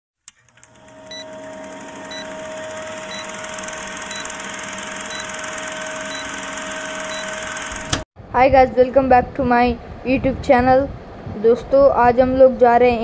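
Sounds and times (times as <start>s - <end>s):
film projector clatter: 0.3s - 8.0s
projector hum: 0.4s - 8.5s
short high beeps: 1.1s - 1.4s, 2.1s - 7.8s.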